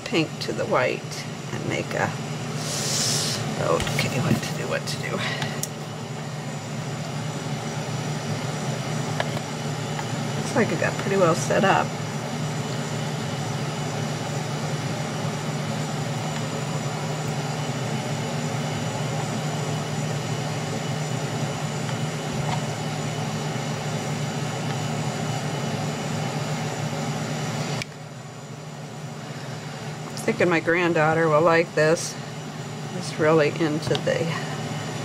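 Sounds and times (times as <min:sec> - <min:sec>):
fan motor whirring: 0:00.0 - 0:35.0.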